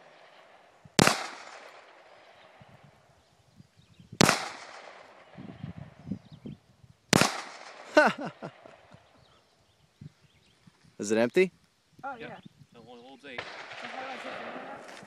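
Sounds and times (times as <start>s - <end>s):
pistol shots with echo: 0.1s - 2.1s, 4.2s - 5.4s, 7.1s - 8.6s, 13.4s - 14.6s.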